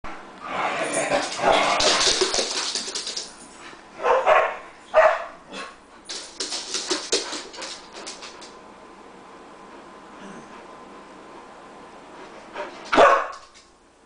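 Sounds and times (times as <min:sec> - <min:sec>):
claws pattering on wooden floor: 0:01.3 - 0:03.6, 0:06.1 - 0:08.6
dogs barking: 0:04.0 - 0:05.4, 0:12.9 - 0:13.4.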